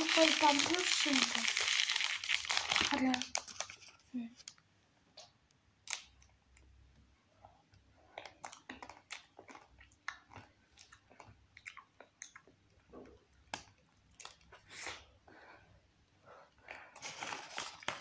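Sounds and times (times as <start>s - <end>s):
chewing ice cream bar: 8.2s - 12.8s.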